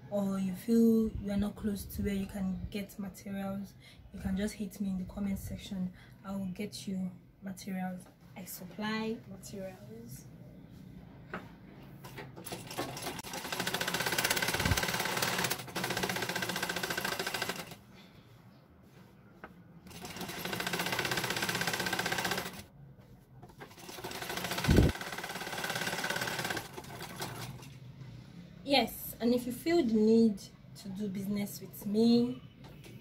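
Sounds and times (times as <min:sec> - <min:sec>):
sewing machine clattering: 0:12.0 - 0:17.8, 0:19.9 - 0:22.7, 0:23.5 - 0:27.8.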